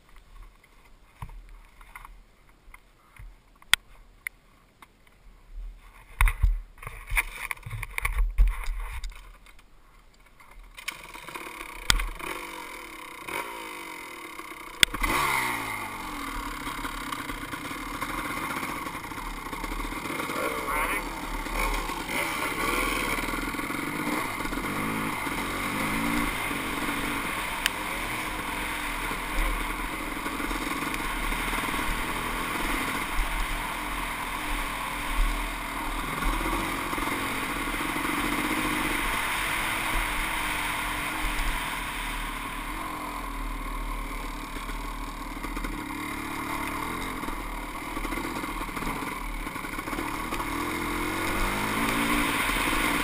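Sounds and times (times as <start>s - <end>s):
dirt bike engine revving: 10.8s - 53.0s.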